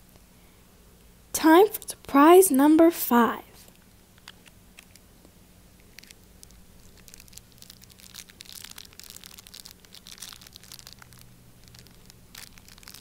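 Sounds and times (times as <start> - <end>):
foil bag crinkling: 5.8 - 13.0.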